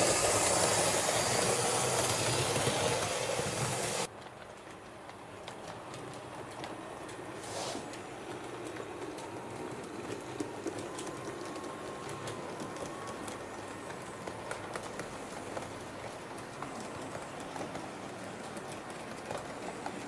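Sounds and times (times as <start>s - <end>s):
model train rumbling: 0.0s - 4.1s
wheels clicking on rail joints: 0.0s - 20.0s.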